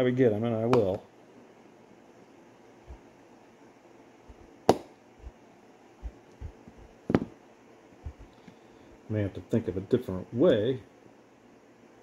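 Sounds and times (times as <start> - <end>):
faint knocks: 8.0 - 8.4.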